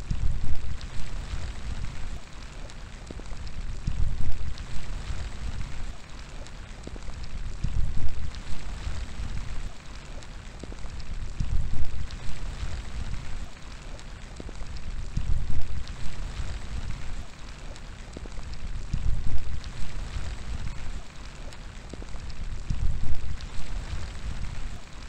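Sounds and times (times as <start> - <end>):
steady rain: 0.0 - 25.0
wind gusts on microphone: 10.6 - 13.5, 14.4 - 17.3, 21.8 - 24.8.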